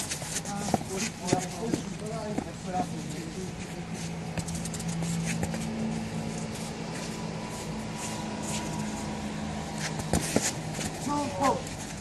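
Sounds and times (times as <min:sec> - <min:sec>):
shoe scuffs on artificial turf: 0:00.2 - 0:05.8.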